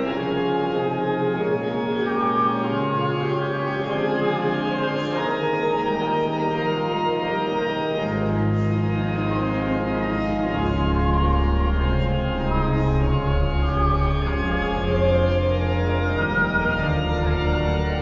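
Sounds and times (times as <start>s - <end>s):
pipe organ chords: 0.0s - 18.0s
deep bass pedal notes: 10.6s - 18.0s.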